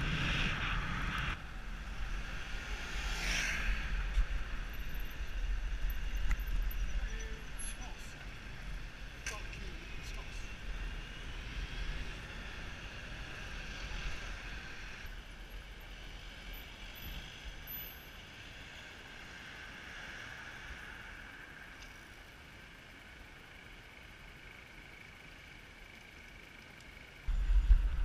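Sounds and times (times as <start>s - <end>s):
wind rumble on microphone: 0.0s - 7.5s, 27.3s - 28.0s
street and traffic noise: 0.0s - 28.0s.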